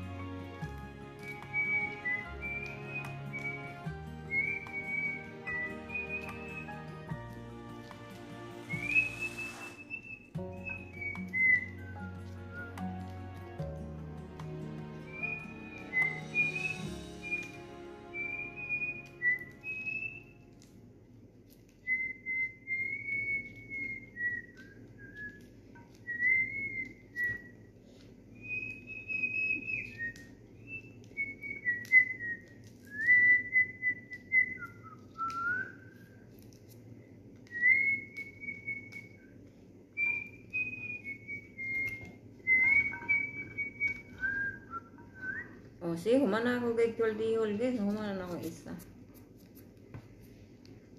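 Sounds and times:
person whistling a tune: 1.2s - 7.3s, 7.9s - 13.3s, 14.9s - 20.5s, 21.9s - 25.4s, 26.0s - 27.7s, 28.4s - 36.1s, 37.4s - 45.7s.

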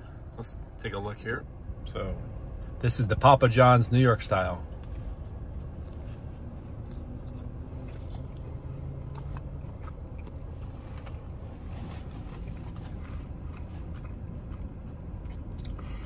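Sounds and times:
low car rumble: 0.0s - 16.0s
man chewing pizza: 4.7s - 16.0s.

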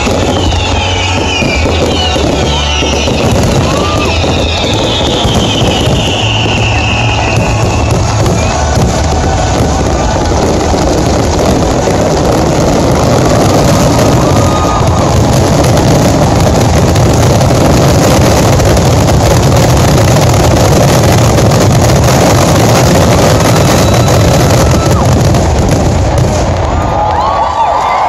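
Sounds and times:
fireworks bursting: 0.0s - 28.0s
fireworks crackling: 0.0s - 28.0s.

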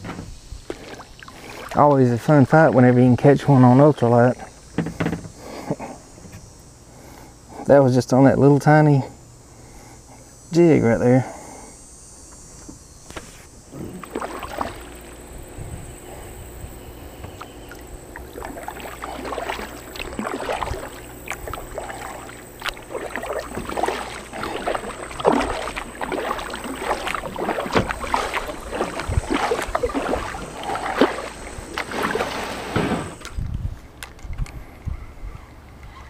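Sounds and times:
kayak paddle splashing in water: 0.6s - 1.9s, 13.2s - 33.3s.

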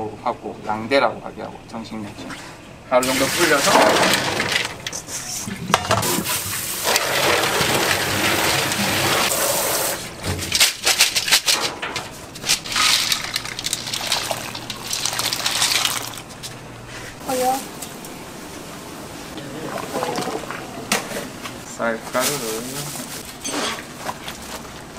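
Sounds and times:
beans rattling against metal: 12.4s - 16.3s
beans dropping into boiling water: 12.7s - 16.2s
water splashing over beans: 12.7s - 16.3s.

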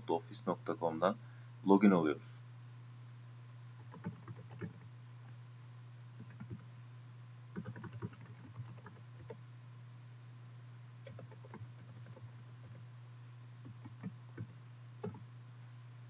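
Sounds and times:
low electrical hum: 0.0s - 16.0s
computer keyboard typing: 3.8s - 4.9s, 6.2s - 6.6s, 7.6s - 9.4s, 11.0s - 12.8s, 13.6s - 15.2s.

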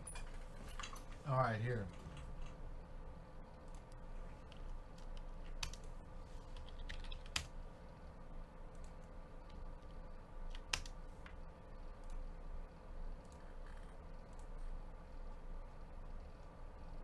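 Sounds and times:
faint steady hum: 0.0s - 17.0s
typing on computer keyboard: 4.5s - 7.5s, 9.8s - 11.0s.

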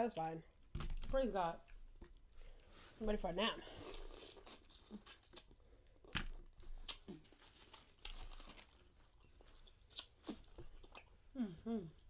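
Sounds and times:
soft chewing with clicks: 4.1s - 11.3s.

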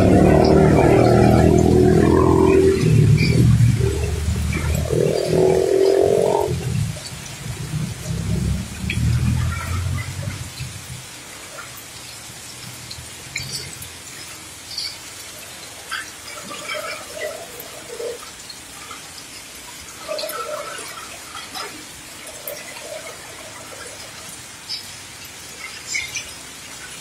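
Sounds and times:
motorbike engine passing: 0.0s - 6.7s
heavy rain falling: 0.0s - 27.0s
water dripping and splattering: 0.0s - 27.0s.

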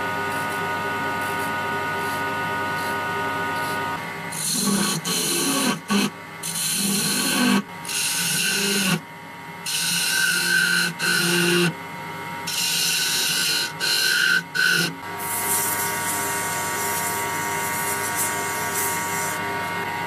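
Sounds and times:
lathe humming: 0.0s - 9.0s, 9.6s - 20.0s
lathe tool scraping wood: 3.6s - 9.0s, 9.7s - 11.8s, 12.5s - 19.5s.

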